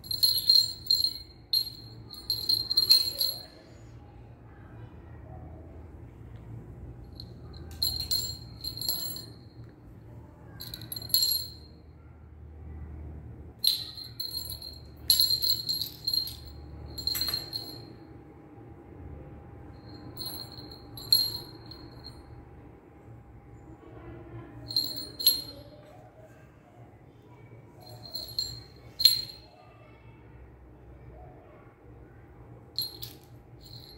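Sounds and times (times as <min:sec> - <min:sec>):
small jingle bell jingling: 0:00.0 - 0:03.9, 0:07.1 - 0:09.7, 0:10.5 - 0:11.8, 0:13.6 - 0:18.0, 0:19.8 - 0:22.3, 0:24.6 - 0:25.9, 0:27.8 - 0:29.7, 0:32.8 - 0:33.9.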